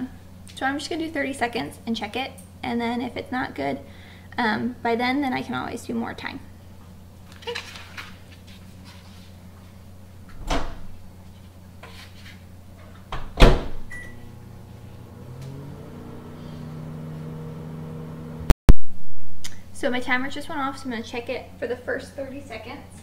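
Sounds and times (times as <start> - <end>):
microwave humming: 12.4 - 18.6.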